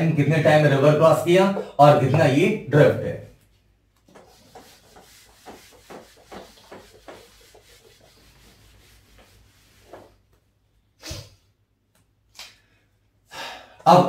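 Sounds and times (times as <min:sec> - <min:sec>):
duster rubbing on whiteboard: 0:04.0 - 0:10.3.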